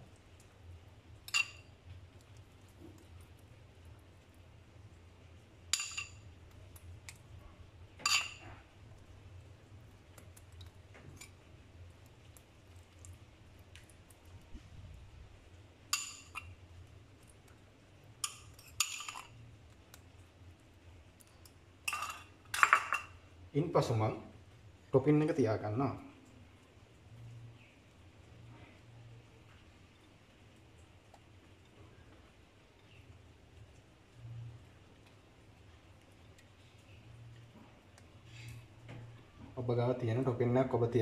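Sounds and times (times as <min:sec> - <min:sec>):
faint low hum: 0:00.0 - 0:41.0
metal spoon clinking on dishes: 0:01.2 - 0:01.7, 0:05.7 - 0:06.3, 0:08.0 - 0:08.6, 0:15.9 - 0:16.5, 0:18.2 - 0:19.4, 0:21.2 - 0:23.2.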